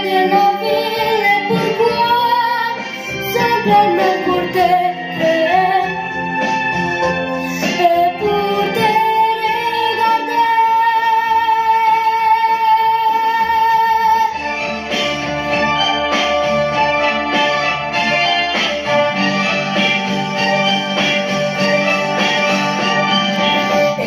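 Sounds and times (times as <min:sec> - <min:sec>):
boy singing into a microphone: 0:00.0 - 0:06.1, 0:07.5 - 0:14.4
instrumental accompaniment: 0:00.0 - 0:24.0.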